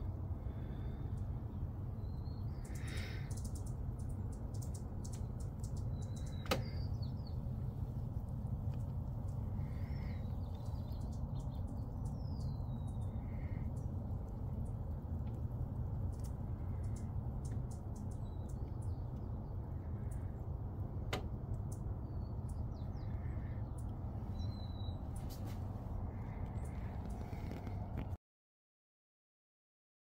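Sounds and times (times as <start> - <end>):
low background rumble: 0.0 - 28.2
faint high bird chirps: 1.9 - 7.5, 9.2 - 13.9, 21.7 - 25.5.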